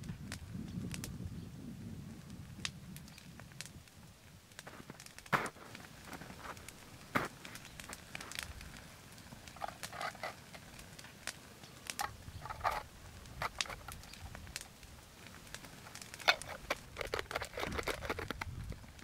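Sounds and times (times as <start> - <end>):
snow crunching and scraping: 4.6 - 10.4.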